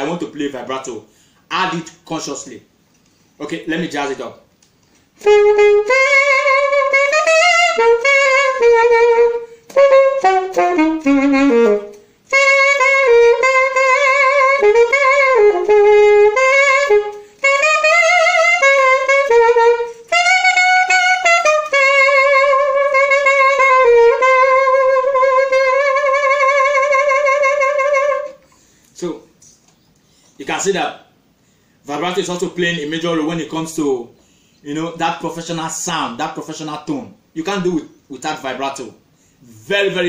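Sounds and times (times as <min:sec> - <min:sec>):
saxophone playing jazzy phrases: 0:05.2 - 0:28.8.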